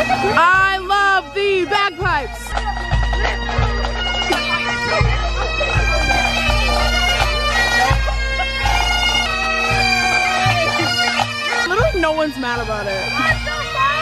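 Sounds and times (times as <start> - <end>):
bagpipe band playing: 0.0 - 14.0
bass drum beating: 0.0 - 14.0.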